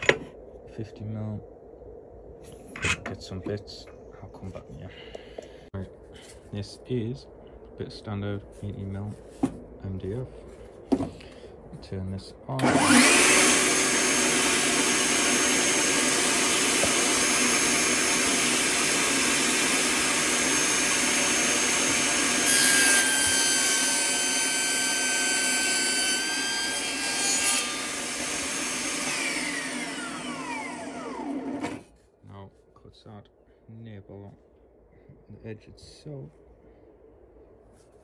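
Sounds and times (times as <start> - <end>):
saw cutting a board: 12.6 - 31.9
table saw whining: 12.6 - 31.9.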